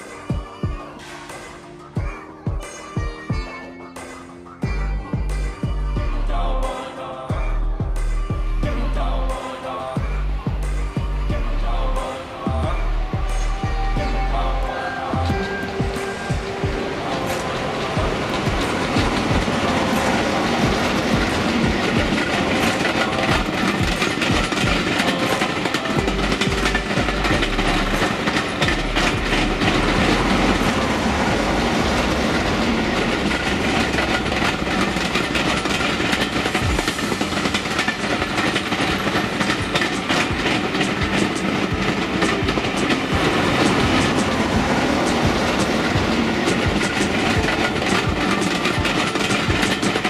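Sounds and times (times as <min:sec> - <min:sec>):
train wheels clattering over rail joints: 0:14.8 - 0:50.0.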